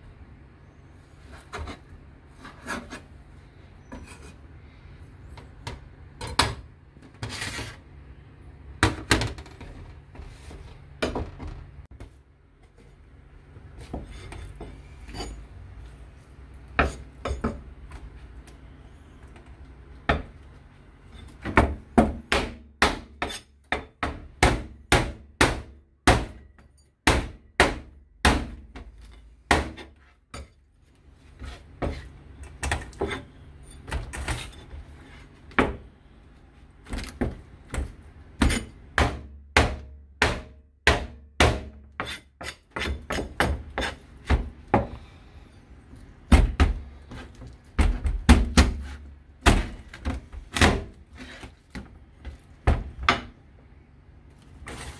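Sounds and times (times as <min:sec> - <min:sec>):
knife chopping on cutting board: 0:37.7 - 0:44.9.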